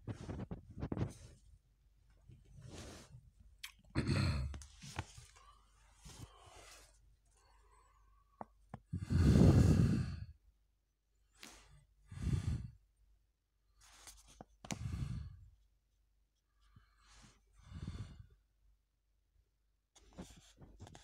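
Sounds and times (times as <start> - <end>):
person breathing: 4.8 - 10.4, 11.4 - 12.8, 13.8 - 15.5, 16.6 - 18.5.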